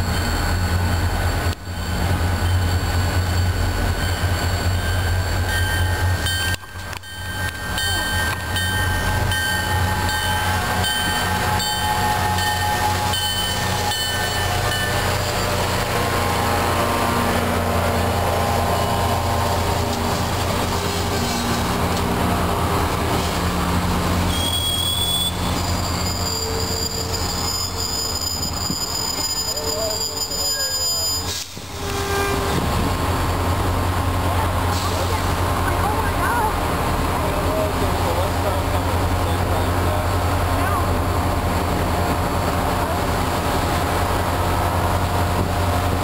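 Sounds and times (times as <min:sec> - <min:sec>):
train rumbling past: 0:00.0 - 0:46.0
train wheel clicks: 0:06.2 - 0:08.9
high-pitched wheel squeal: 0:24.3 - 0:32.7.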